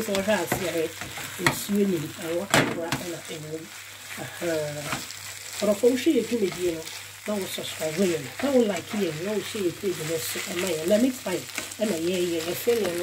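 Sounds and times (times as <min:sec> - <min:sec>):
meat sizzling in a pan: 0:00.0 - 0:13.0
spatula scraping pan: 0:00.0 - 0:13.0
person speaking: 0:05.6 - 0:13.0.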